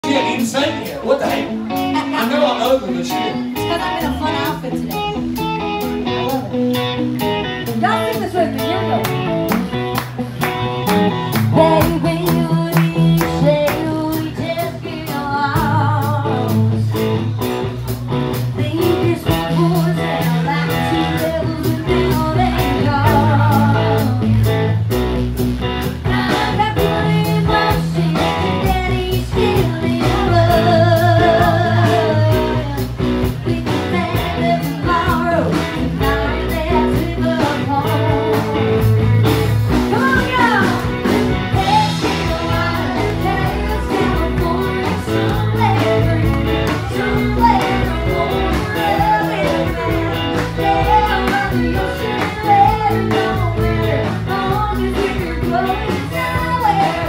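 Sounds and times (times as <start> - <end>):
bass: 0.0 - 57.0
electric guitar: 0.0 - 57.0
steady drum beat: 2.8 - 57.0
woman singing into a microphone: 11.3 - 17.1, 18.5 - 24.6, 26.0 - 39.0, 39.9 - 57.0.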